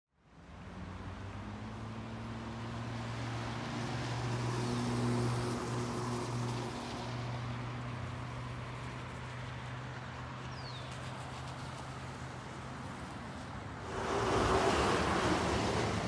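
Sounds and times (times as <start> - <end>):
steady outdoor hiss: 0.2 - 16.0
vehicle passing: 13.8 - 16.0.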